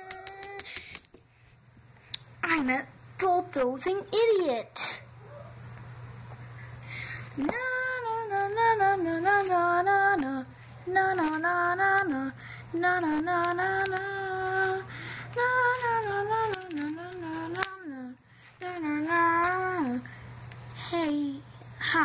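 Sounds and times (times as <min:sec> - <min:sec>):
person singing wordless tune: 0:00.0 - 0:00.8, 0:07.4 - 0:20.1.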